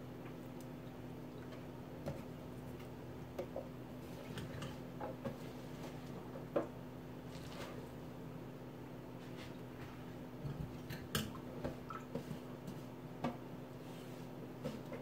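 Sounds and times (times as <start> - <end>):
low steady hum: 0.0 - 15.0
wet greens rustling: 7.2 - 8.0.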